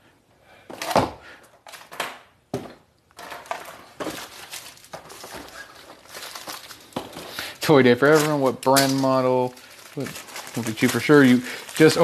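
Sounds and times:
cardboard and wrapping rustling: 0:03.2 - 0:12.0.

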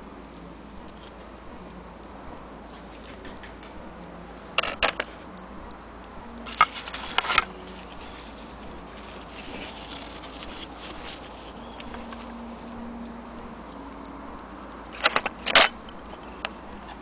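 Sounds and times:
clock parts clicking: 0:00.3 - 0:05.8, 0:06.4 - 0:17.0
paper towel rustling: 0:06.5 - 0:12.6.

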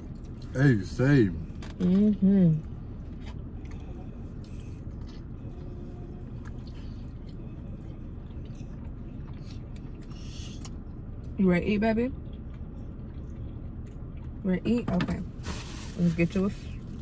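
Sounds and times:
steady low hum: 0:00.0 - 0:17.0
person chewing: 0:03.0 - 0:11.3, 0:12.2 - 0:14.4.

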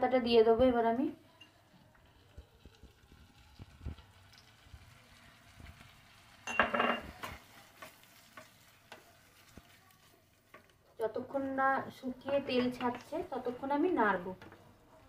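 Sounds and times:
faint sizzling: 0:00.0 - 0:15.0
spatula scraping bean paste in pan: 0:07.2 - 0:10.7.

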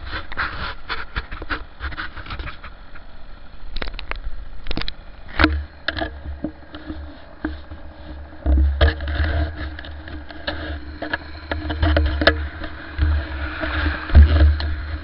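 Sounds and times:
two-stroke moped engine hum: 0:02.9 - 0:15.0
wind buffeting microphone: 0:03.7 - 0:15.0.

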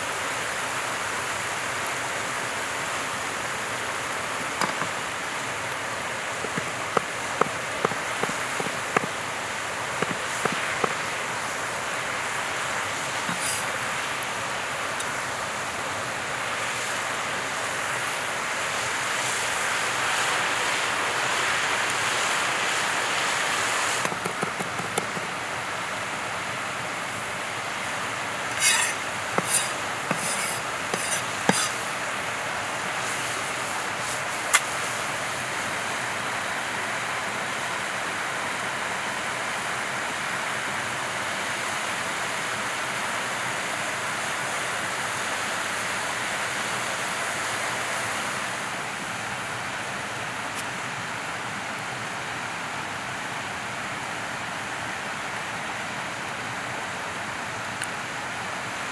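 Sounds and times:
knife strokes on cutting board: 0:13.3 - 0:13.7, 0:28.5 - 0:31.9.

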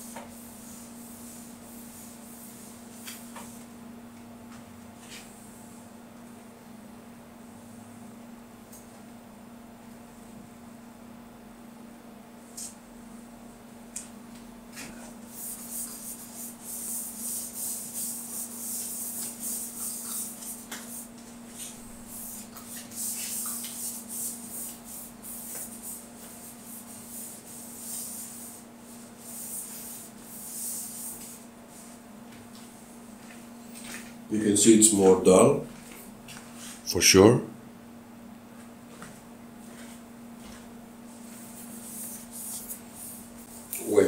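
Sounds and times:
steady low hum: 0:00.0 - 0:44.0
cloth rubbing on bowling ball: 0:15.2 - 0:33.5.

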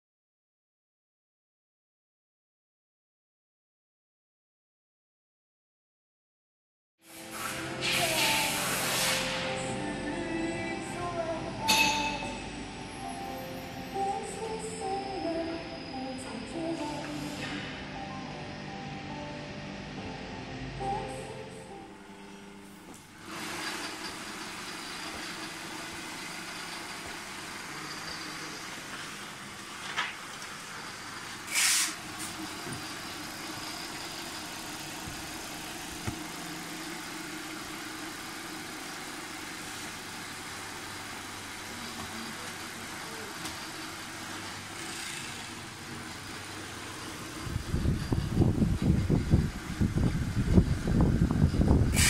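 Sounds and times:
loud burst of hiss: 0:07.1 - 0:09.6, 0:31.4 - 0:32.3
sewing machine running: 0:23.2 - 0:27.9, 0:43.6 - 0:48.7.

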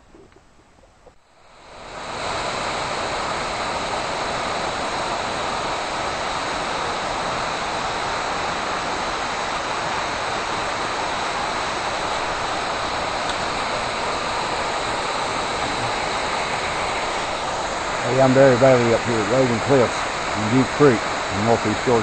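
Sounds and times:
rushing water: 0:01.2 - 0:22.0.

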